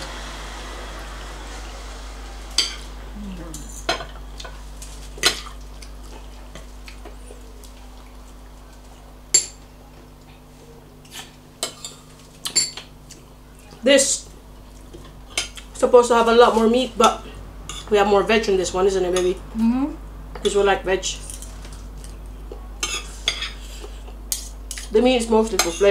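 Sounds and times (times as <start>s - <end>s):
cutlery clinking on plates: 22.8s - 24.9s.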